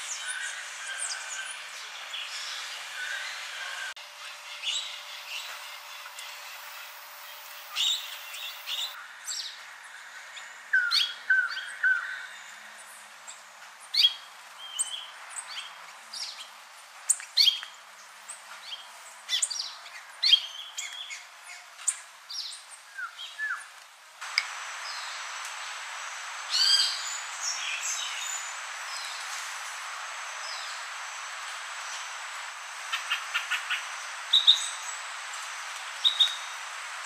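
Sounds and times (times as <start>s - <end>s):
small birds chirping: 0.0s - 9.5s.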